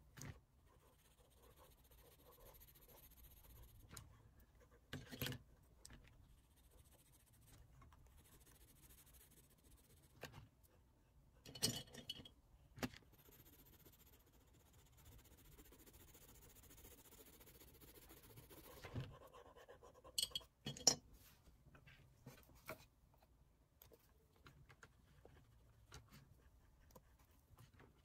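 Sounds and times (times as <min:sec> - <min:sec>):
fingers rubbing pastel on paper: 0:00.7 - 0:04.8, 0:06.2 - 0:10.2, 0:13.0 - 0:20.1.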